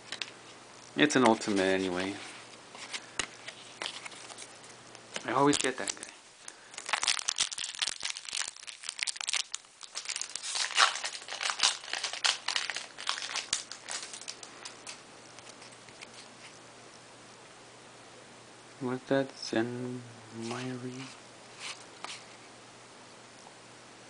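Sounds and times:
foil wrapper crinkling and tearing: 3.7 - 16.0.

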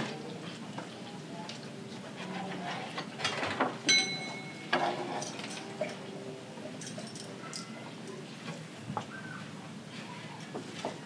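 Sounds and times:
kitchen utensils clattering: 2.2 - 6.0, 6.8 - 7.8.

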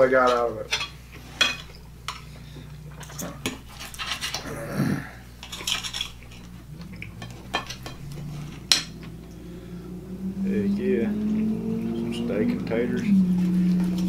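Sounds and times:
cutlery scraping on plates: 0.0 - 2.4, 3.0 - 4.6, 5.4 - 9.2.

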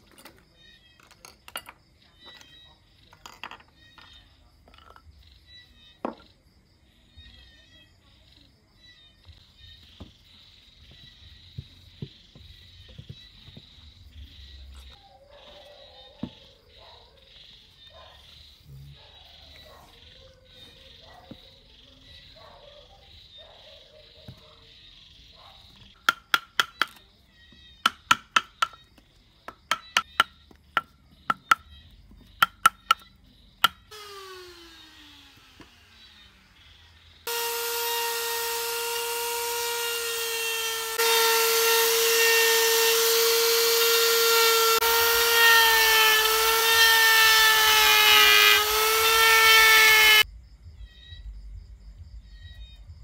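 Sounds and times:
rotary tool grinding wood: 33.9 - 50.2.

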